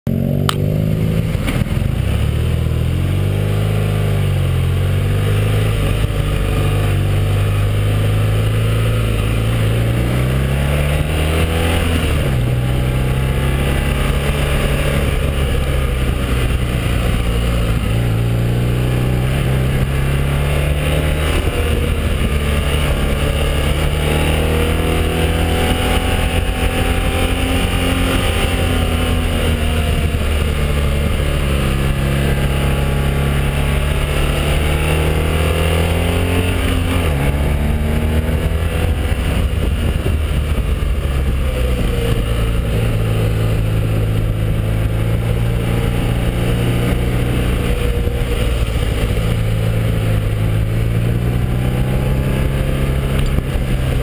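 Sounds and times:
motorcycle engine revving: 0:00.1 - 0:54.0
wind noise: 0:00.2 - 0:54.0.

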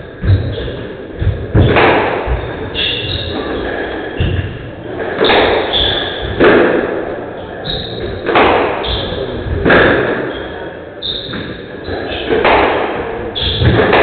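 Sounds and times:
shoes squeaking on floor: 0:00.0 - 0:06.5, 0:07.3 - 0:12.5, 0:13.3 - 0:14.0
squash ball thuds: 0:00.1 - 0:03.4, 0:04.1 - 0:07.2, 0:08.0 - 0:10.3, 0:12.3 - 0:14.0.

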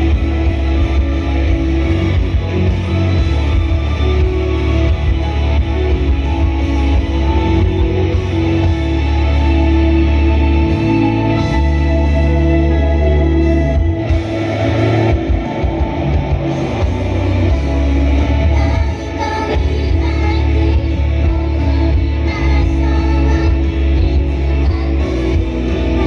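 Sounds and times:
live pop-rock band: 0:00.0 - 0:26.0
person singing: 0:16.5 - 0:26.0.

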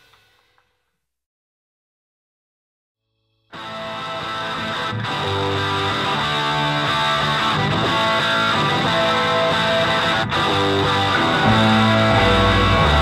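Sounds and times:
guitar background music: 0:03.5 - 0:13.0
heavy bass: 0:05.3 - 0:13.0.

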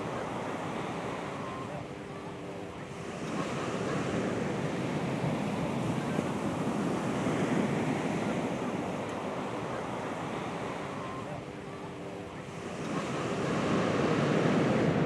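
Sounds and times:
ocean surf breaking on beach: 0:00.0 - 0:01.6, 0:02.8 - 0:11.6, 0:12.3 - 0:15.0.

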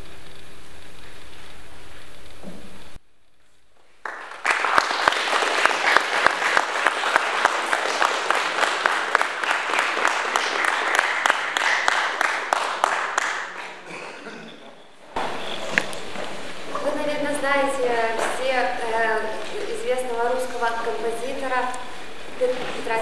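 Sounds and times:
audience applauding: 0:03.8 - 0:14.3, 0:15.2 - 0:23.0.

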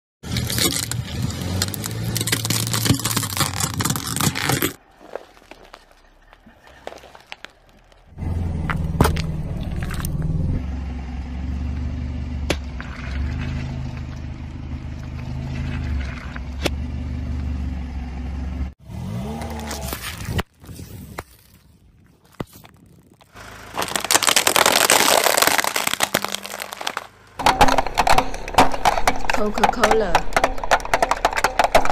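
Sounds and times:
plastic cups crushed: 0:00.2 - 0:08.1, 0:22.2 - 0:31.9
plastic cracking under tyre: 0:00.3 - 0:10.3, 0:19.4 - 0:31.9
low engine hum: 0:07.5 - 0:20.2
water beads squashed: 0:22.5 - 0:27.2.

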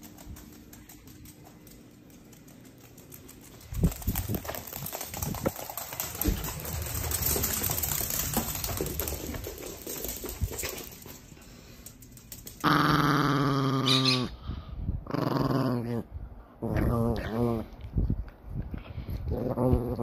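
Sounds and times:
dog claws clicking on wood floor: 0:00.0 - 0:12.8.

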